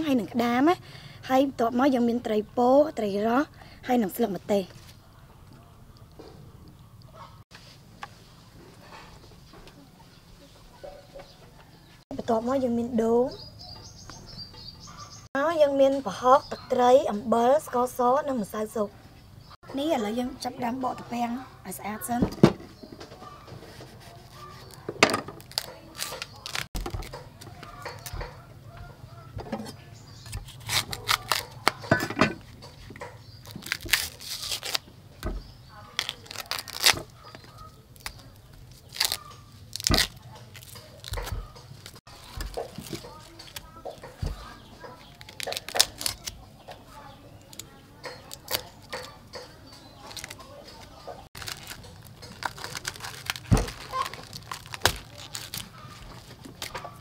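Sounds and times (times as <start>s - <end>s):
husk leaves tearing: 23.7s - 28.3s, 30.2s - 31.8s, 33.4s - 35.0s, 35.7s - 46.5s, 47.4s - 49.2s, 49.8s - 57.0s.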